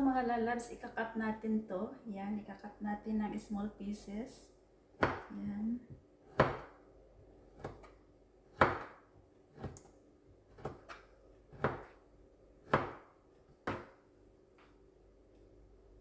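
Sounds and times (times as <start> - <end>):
knife chopping on plastic board: 5.0 - 5.3, 6.3 - 6.8, 7.5 - 9.9, 10.5 - 12.0, 12.6 - 14.0.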